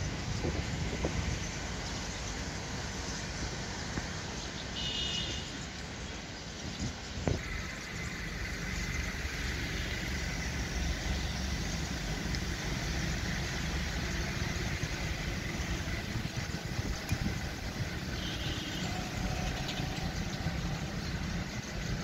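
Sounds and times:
small petrol engine idling: 7.4s - 22.0s.

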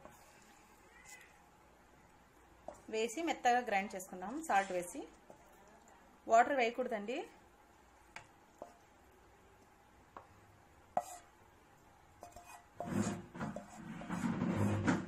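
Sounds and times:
spatula scraping pan: 10.9s - 11.3s, 12.2s - 15.0s.

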